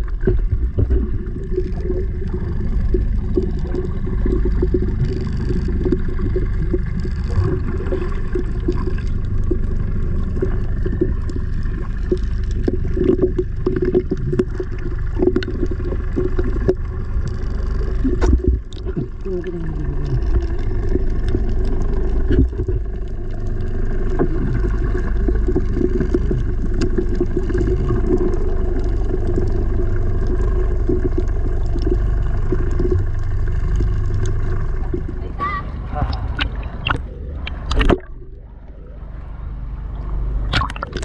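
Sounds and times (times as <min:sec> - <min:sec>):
bubbling: 0:00.0 - 0:41.0
muffled underwater rumble: 0:00.0 - 0:41.0
small clicks and pops: 0:20.0 - 0:29.6, 0:30.2 - 0:35.1, 0:36.4 - 0:38.8.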